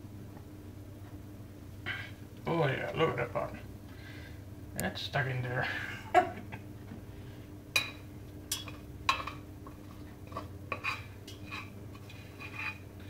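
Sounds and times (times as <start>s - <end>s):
spoon scraping a metal saucepan: 10.3s - 12.9s.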